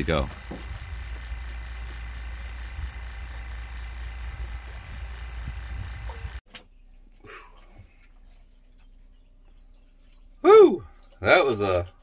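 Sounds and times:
vacuum pump humming: 0:00.0 - 0:06.4.

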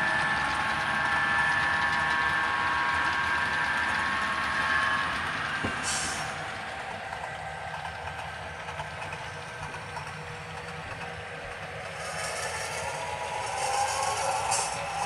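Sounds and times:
diesel engine sound from small speaker: 0:00.0 - 0:15.0
model train wheels rolling on track: 0:00.0 - 0:15.0.

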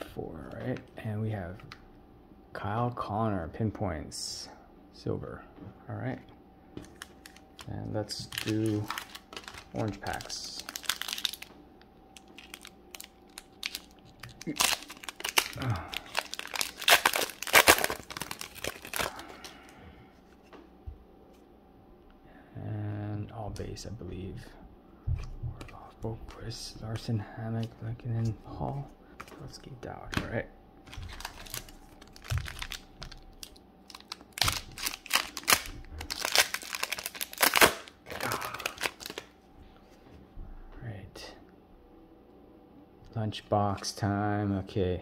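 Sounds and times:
plastic foil wrapper crinkling: 0:06.8 - 0:11.5, 0:12.2 - 0:19.7, 0:30.9 - 0:39.3.

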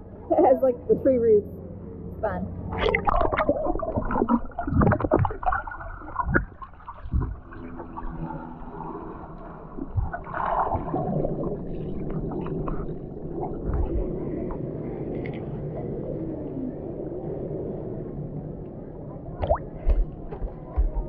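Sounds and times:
underwater gurgling and sloshing: 0:00.0 - 0:21.0.

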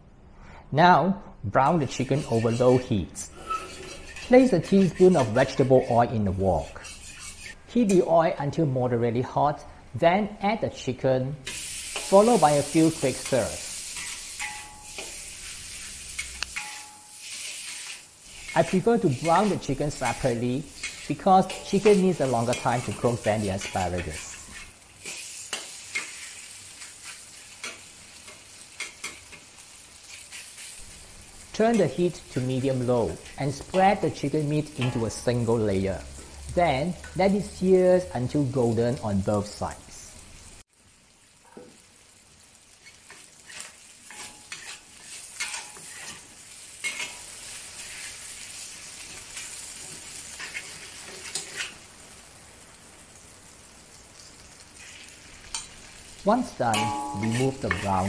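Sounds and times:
metal spatula scraping wok: 0:01.6 - 0:08.1, 0:11.5 - 0:38.0, 0:42.8 - 0:51.9, 0:54.7 - 0:58.0
chicken sizzling in oil: 0:11.4 - 0:58.0.

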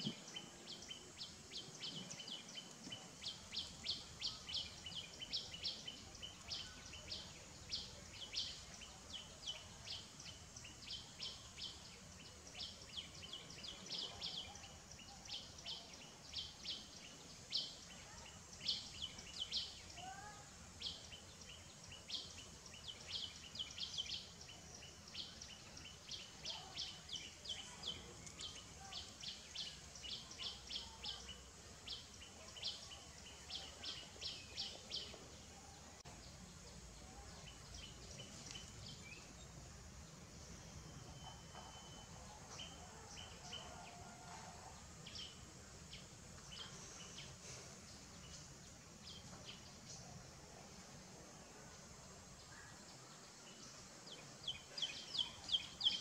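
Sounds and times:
faint steady high tone: 0:40.2 - 0:44.1.

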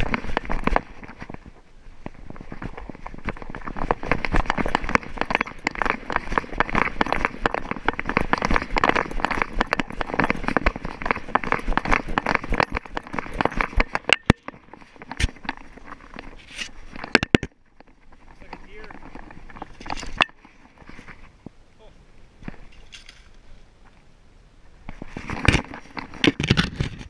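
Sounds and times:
scuffs and clicks: 0:00.0 - 0:17.2
dog paws on gravel trail: 0:00.0 - 0:21.3.

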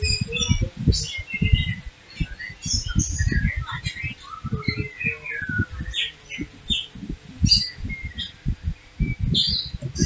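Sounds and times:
irregular low thumps: 0:00.0 - 0:10.0
small birds chirping: 0:00.0 - 0:10.0.

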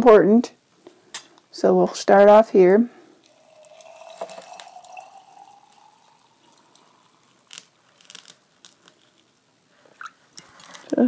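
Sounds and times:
faint drips: 0:03.1 - 0:09.3
water pouring into a jar: 0:03.2 - 0:08.4.

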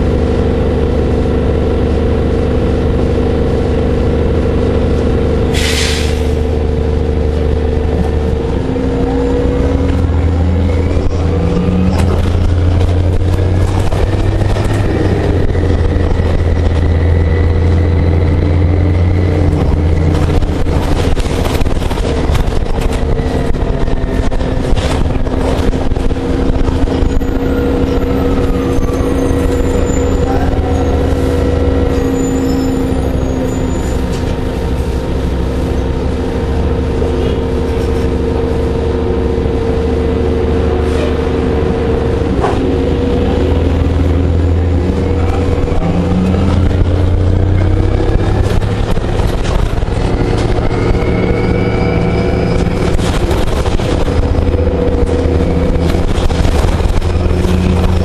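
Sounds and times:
bus engine drone: 0:00.0 - 0:58.0
whine rising and falling in pitch: 0:46.0 - 0:58.0.

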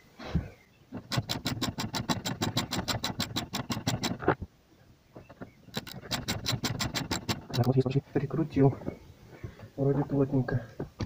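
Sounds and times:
ratchet wrench clicking rapidly: 0:01.1 - 0:04.2, 0:05.7 - 0:07.7.

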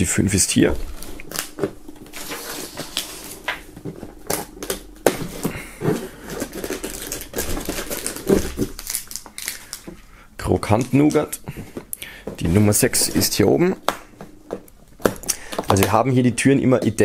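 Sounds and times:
cardboard tearing and crackling: 0:00.8 - 0:09.9.

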